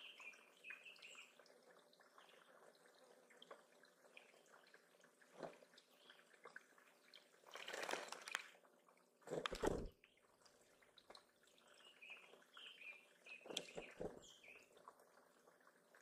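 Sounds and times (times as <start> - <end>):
faint water trickle: 0.0 - 16.0
bird splashing in water: 7.2 - 8.6.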